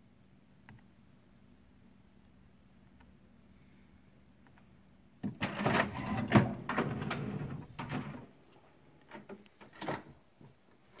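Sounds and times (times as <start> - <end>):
printer mechanism clattering: 5.2 - 8.3.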